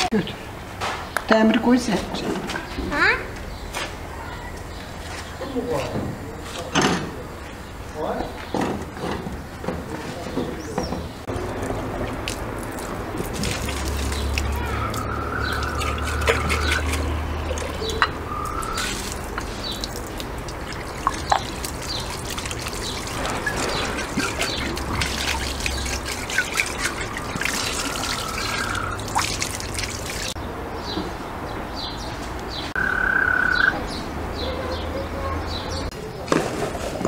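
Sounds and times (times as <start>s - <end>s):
birds chirping: 0.0s - 36.3s
water trickling into pot: 11.3s - 30.4s.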